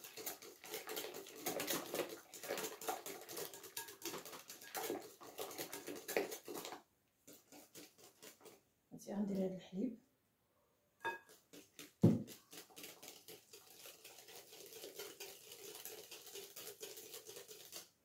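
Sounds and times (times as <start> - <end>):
whisk beating batter in glass bowl: 0.0 - 8.7, 11.2 - 18.0
knock: 12.0 - 12.3.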